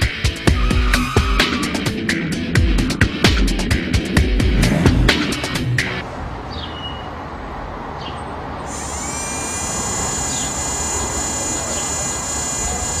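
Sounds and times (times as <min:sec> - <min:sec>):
faint bird chirps: 0:08.0 - 0:12.4
high-pitched whine: 0:08.7 - 0:13.0
motorcycle engine rumbling: 0:08.7 - 0:13.0.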